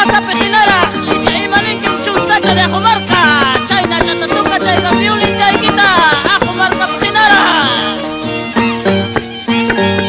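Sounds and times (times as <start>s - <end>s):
steady clicking beat: 0.0s - 8.0s
high voices singing: 0.0s - 8.4s
violin melody: 0.0s - 10.0s.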